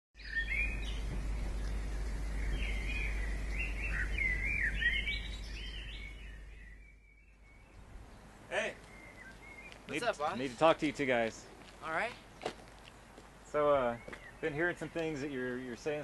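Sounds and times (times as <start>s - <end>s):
low rumble: 0.2s - 8.4s
birds singing: 0.2s - 16.0s.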